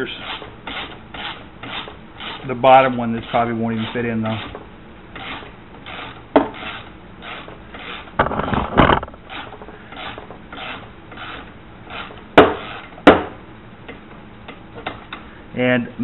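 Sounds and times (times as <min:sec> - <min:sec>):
screwdriver rasping: 0:00.2 - 0:04.6, 0:05.2 - 0:12.9.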